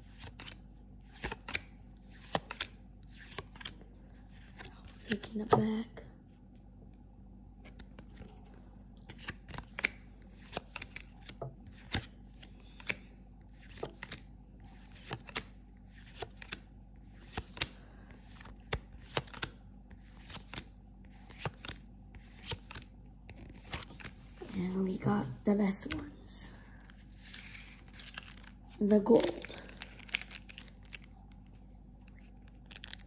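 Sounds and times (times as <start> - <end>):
paper cards snapping and rustling: 0.1 - 3.8, 9.1 - 16.6, 17.2 - 19.6, 20.2 - 20.7, 21.3 - 24.6, 27.2 - 31.5, 32.1 - 33.0.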